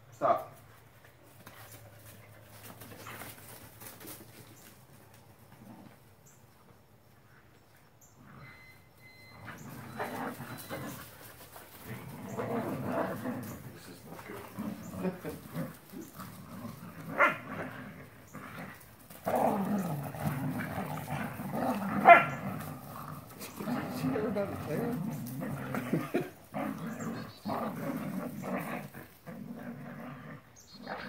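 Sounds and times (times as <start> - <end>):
dogs play-growling: 5.1 - 6.3, 8.1 - 31.0
dog barking: 22.0 - 22.4.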